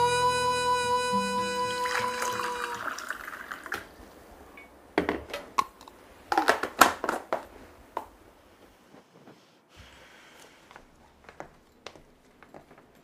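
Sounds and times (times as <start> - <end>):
water pouring into a glass: 1.8 - 3.9.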